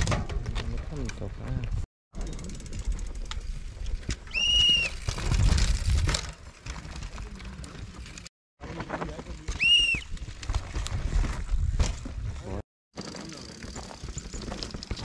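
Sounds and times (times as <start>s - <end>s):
mountain bike rushing past: 2.2s - 8.1s.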